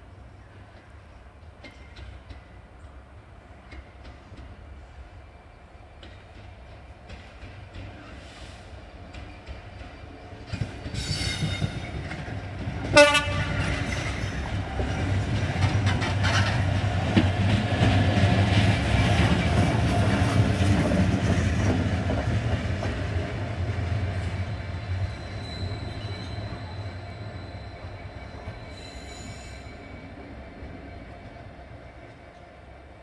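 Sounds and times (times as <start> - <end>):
diesel locomotive engine: 0.0 - 33.0
train wheels on rails: 0.5 - 33.0
locomotive horn toot: 12.9 - 13.7.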